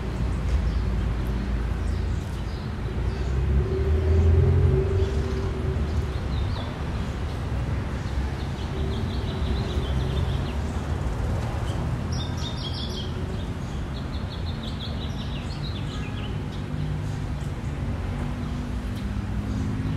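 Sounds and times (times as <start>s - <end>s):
road traffic rumble: 0.0s - 19.9s
small birds chirping: 5.0s - 19.9s.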